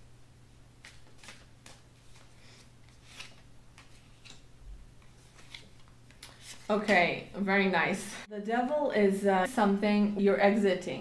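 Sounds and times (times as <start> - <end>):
cards being handled: 0.8 - 7.1.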